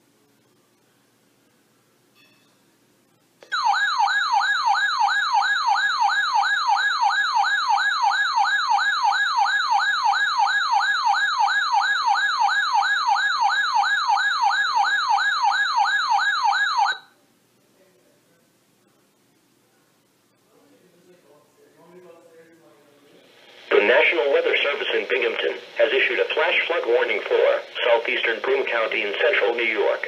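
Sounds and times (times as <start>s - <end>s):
electronic warbling alarm tone: 3.4s - 17.0s.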